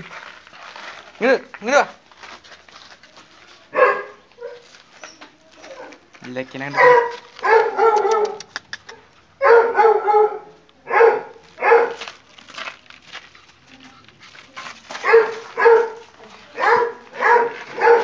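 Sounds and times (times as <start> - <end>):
puppy barking in high yaps: 3.7 - 4.7, 6.7 - 12.0, 15.0 - 16.0, 16.6 - 18.0.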